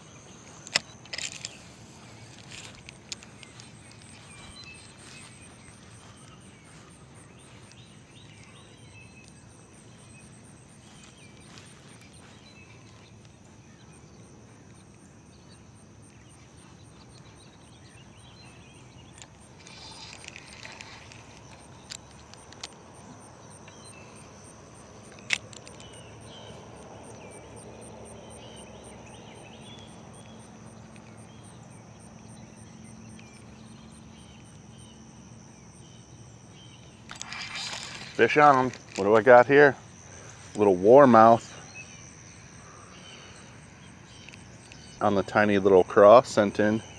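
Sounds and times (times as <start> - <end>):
insects chirping: 0.0 - 46.9
sharp clicks: 0.5 - 1.7, 19.1 - 24.3, 25.0 - 27.4, 36.8 - 39.5.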